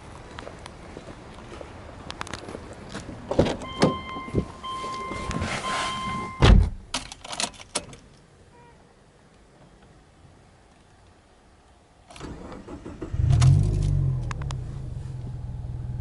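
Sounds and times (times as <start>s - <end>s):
in-car warning chime: 3.6s - 6.5s
car door shutting thump: 6.4s - 6.8s.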